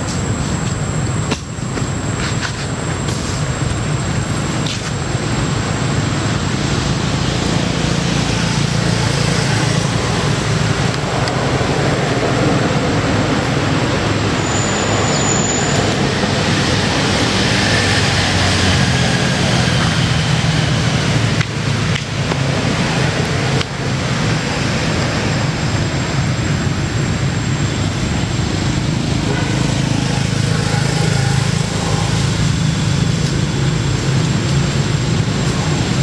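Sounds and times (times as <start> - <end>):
traffic rumble: 0.0 - 36.0.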